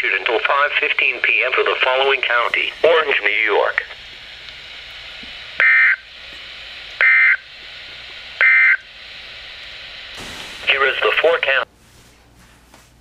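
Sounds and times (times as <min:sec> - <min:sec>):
radio hiss: 0:00.0 - 0:11.7
digital data bursts: 0:05.6 - 0:06.2, 0:07.0 - 0:07.5, 0:08.4 - 0:08.9.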